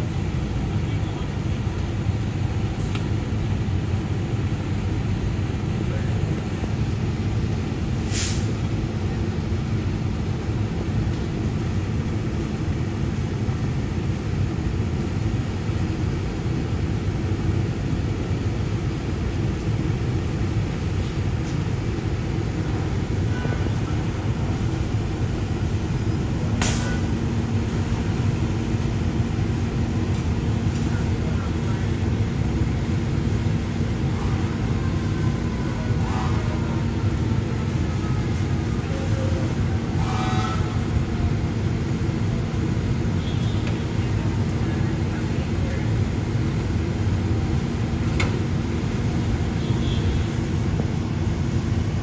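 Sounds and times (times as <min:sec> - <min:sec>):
diesel engine running: 0:00.0 - 0:52.0
brief hisses: 0:08.0 - 0:08.6.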